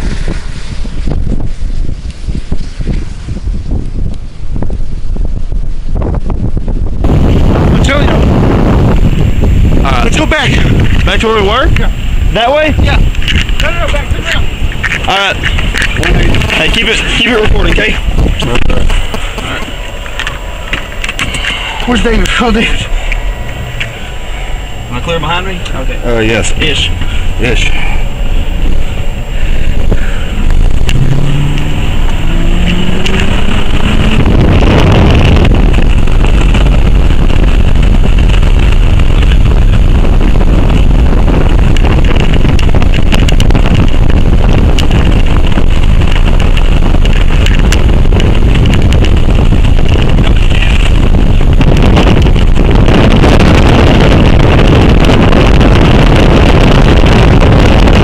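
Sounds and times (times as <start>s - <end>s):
storm wind blasting microphone: 0.0s - 58.0s
vehicle engine revving: 15.5s - 58.0s.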